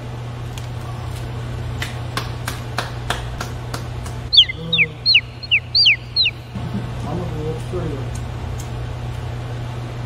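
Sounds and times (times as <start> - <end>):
steady low hum: 0.0 - 10.0
sharp evenly spaced clicks: 3.4 - 6.5
cartoon bird-like chirps: 4.3 - 6.6.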